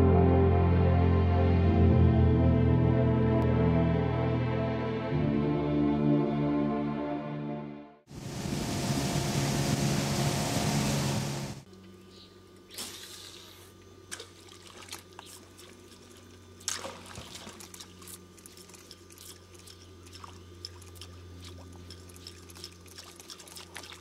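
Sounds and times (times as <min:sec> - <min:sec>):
steady low hum: 0:08.1 - 0:24.0
splashes and drips on water: 0:14.1 - 0:24.0.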